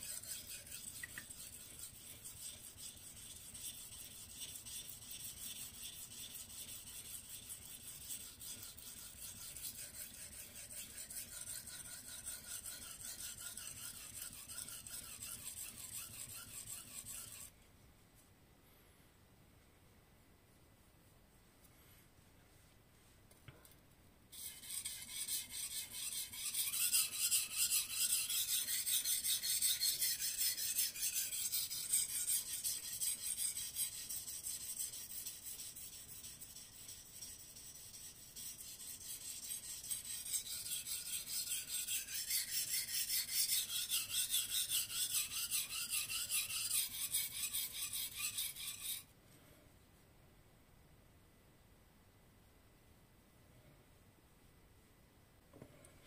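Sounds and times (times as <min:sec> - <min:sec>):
knife scraping on whetstone: 0:00.0 - 0:17.5, 0:24.4 - 0:49.1.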